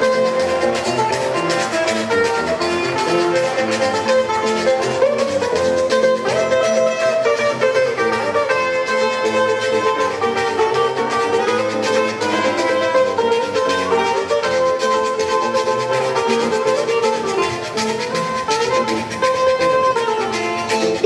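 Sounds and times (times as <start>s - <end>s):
plucked string melody: 0.0s - 21.0s
strummed guitar chords: 0.0s - 21.0s.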